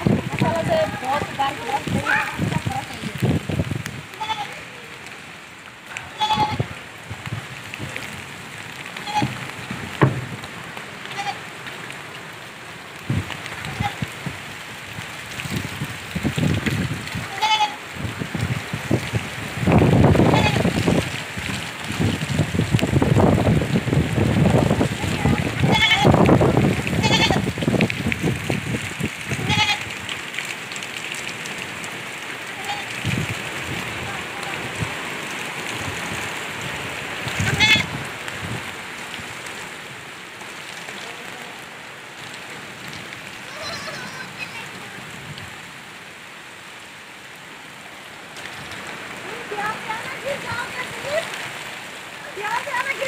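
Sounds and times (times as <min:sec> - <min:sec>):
wind buffeting microphone: 0:00.0 - 0:04.4, 0:06.0 - 0:10.8, 0:13.0 - 0:30.2, 0:32.8 - 0:39.4
rain falling: 0:00.0 - 0:53.0
goats bleating: 0:04.2 - 0:04.7, 0:06.0 - 0:06.7, 0:09.0 - 0:09.4, 0:11.1 - 0:11.4, 0:17.3 - 0:17.8, 0:20.2 - 0:20.7, 0:25.0 - 0:26.2, 0:26.9 - 0:27.5, 0:29.4 - 0:29.8, 0:32.6 - 0:33.0, 0:37.4 - 0:37.9
low thumps: 0:09.2 - 0:10.5.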